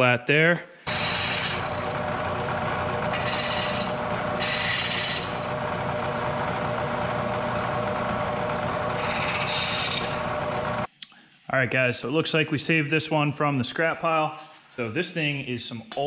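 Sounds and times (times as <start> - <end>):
milling machine spindle running: 0.9 - 10.9.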